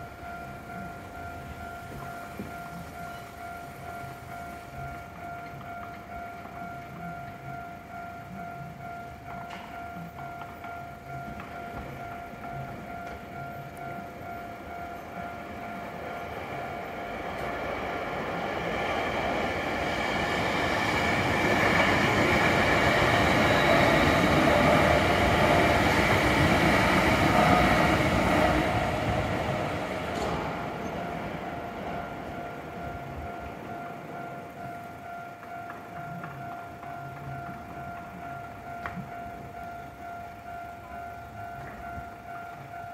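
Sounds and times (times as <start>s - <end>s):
crossing warning signal ringing: 0.0s - 42.9s
electric train passing: 0.0s - 42.9s.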